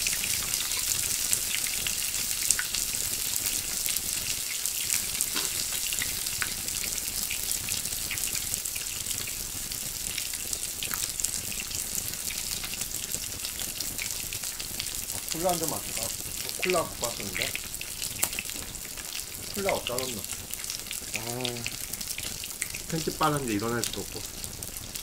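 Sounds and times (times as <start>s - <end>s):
meat sizzling on grill pan: 0.0s - 25.0s.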